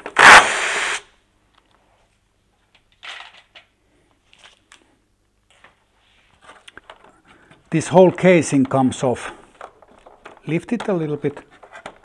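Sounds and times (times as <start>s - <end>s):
tools clicking and rustling: 8.2s - 12.0s.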